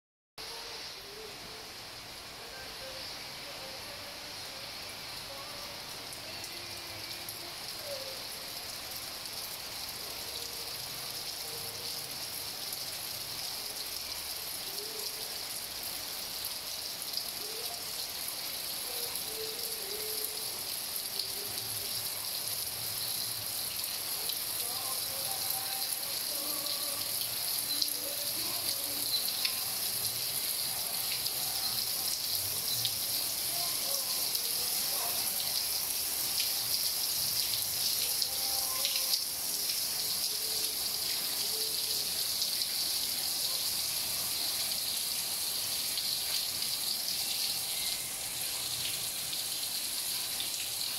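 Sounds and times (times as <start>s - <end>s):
steady rain hiss: 0.4s - 50.9s.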